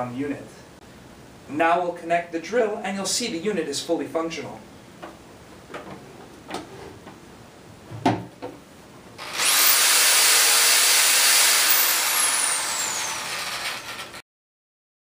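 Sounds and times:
knocks and clicks of handling: 8.0 - 8.6
electric drill motor whine: 9.2 - 14.2.

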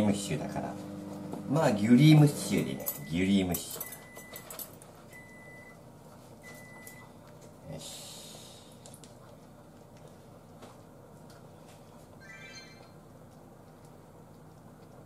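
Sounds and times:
short high electronic beeps: 12.2 - 13.0.

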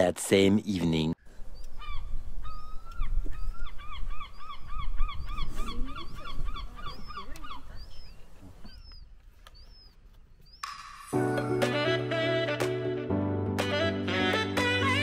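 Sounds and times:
bird calling: 1.1 - 11.1.

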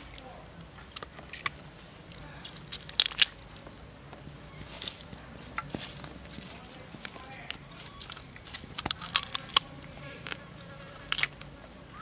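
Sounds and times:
chewing raw meat: 7.8 - 10.4.

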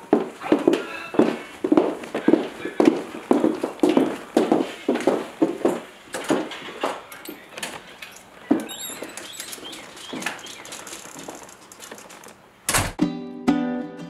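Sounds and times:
footsteps on hard floor: 0.0 - 12.0
door shutting: 6.1 - 13.0.

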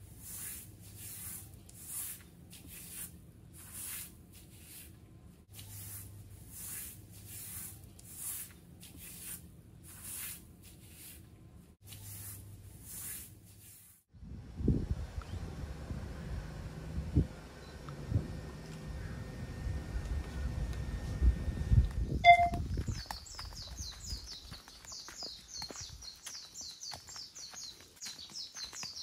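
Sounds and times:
low steady hum: 14.2 - 22.9
footsteps on sandy path: 20.0 - 29.0.

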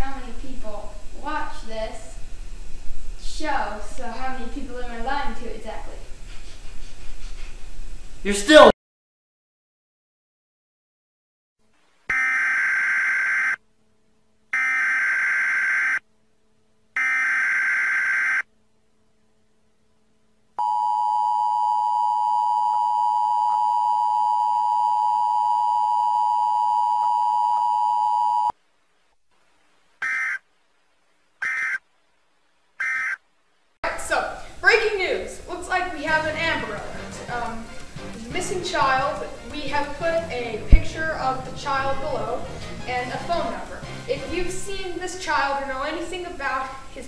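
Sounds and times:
buzzing data bursts: 12.1 - 13.6, 14.5 - 16.0, 17.0 - 18.4, 30.0 - 30.4, 31.4 - 31.8, 32.8 - 33.2.

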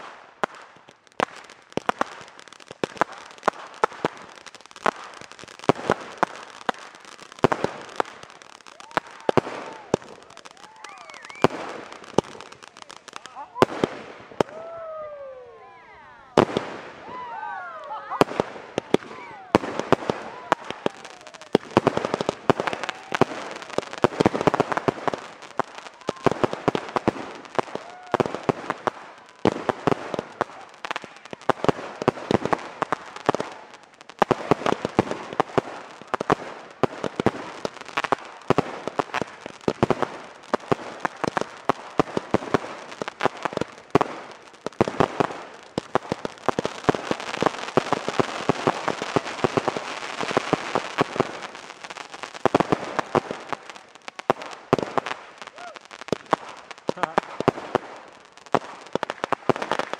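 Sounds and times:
fireworks popping and crackling: 0.0 - 15.4, 16.0 - 59.9
fireworks whistles: 3.0 - 12.8.

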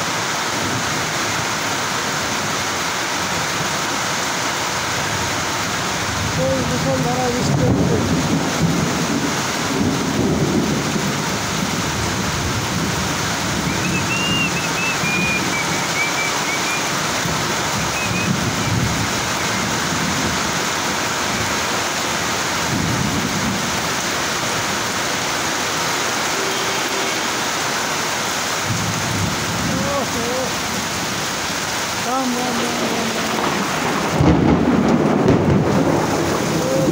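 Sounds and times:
heavy rain falling: 0.0 - 36.9
thunder rumbling: 5.0 - 25.0, 28.6 - 36.9.

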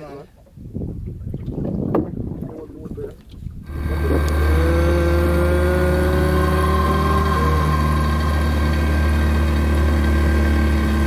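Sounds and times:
outboard motor droning: 3.6 - 11.0.

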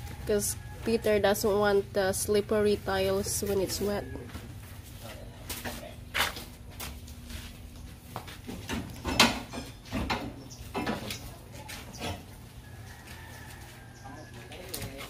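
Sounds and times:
knocks and clunks: 8.5 - 11.1.

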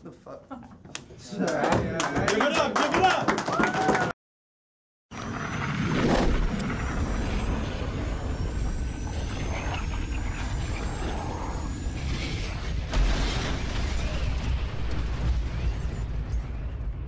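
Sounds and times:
whoosh: 5.2 - 16.6.

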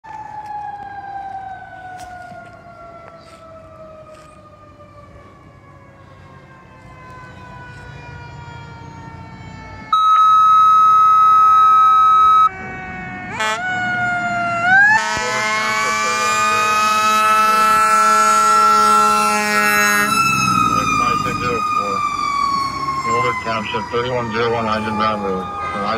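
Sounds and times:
fire engine siren wailing: 0.0 - 25.9
siren whoop: 0.0 - 25.9
fire engine horn blast: 9.9 - 13.8, 14.7 - 20.3.

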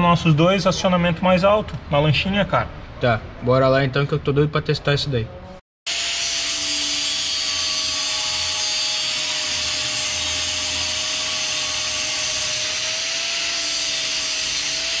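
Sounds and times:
angle grinder motor whine: 5.9 - 15.0.

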